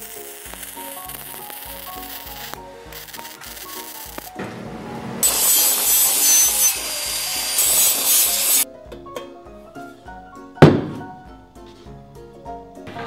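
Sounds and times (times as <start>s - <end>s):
background music: 0.0s - 13.0s
wire brush scratching metal: 0.3s - 4.4s, 5.2s - 8.6s
sharp thunk: 10.6s - 11.2s.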